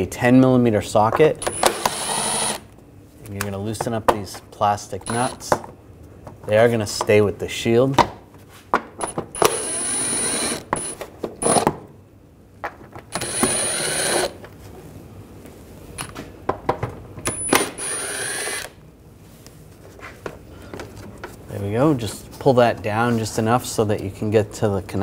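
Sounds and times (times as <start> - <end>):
impact driver spinning nuts: 1.4 - 2.6, 5.0 - 5.5, 9.0 - 11.7, 13.1 - 14.4, 17.3 - 18.7.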